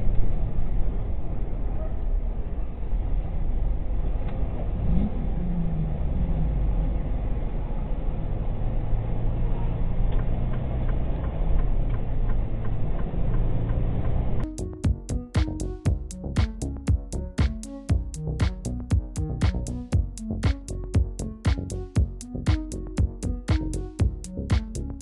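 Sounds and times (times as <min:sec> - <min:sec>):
engine and road rumble: 0:00.0 - 0:25.0.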